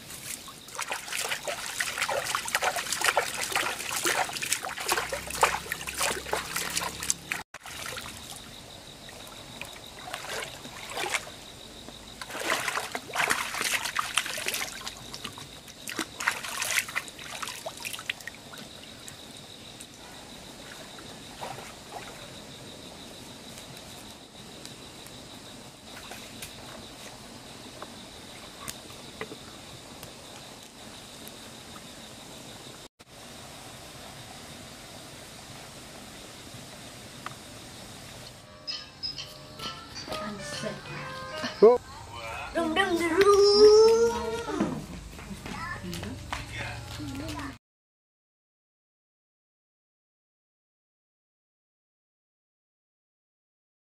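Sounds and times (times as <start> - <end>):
hands splashing in water: 0.2 - 8.3, 12.2 - 18.3
thin high whine: 38.2 - 41.8.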